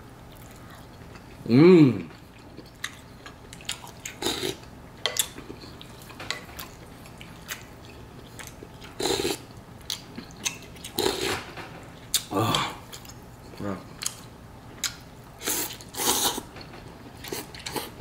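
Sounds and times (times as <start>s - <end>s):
slurping noodles: 9.0s - 9.4s, 15.4s - 16.5s.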